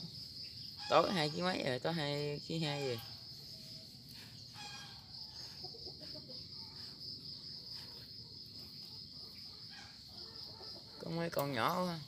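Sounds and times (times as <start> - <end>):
insects droning: 0.0 - 12.0
chickens clucking: 2.6 - 11.9.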